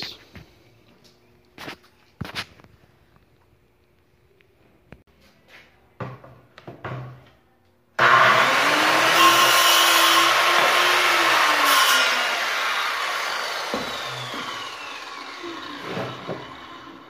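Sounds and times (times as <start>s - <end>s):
circular saw cutting wood: 8.0s - 17.0s.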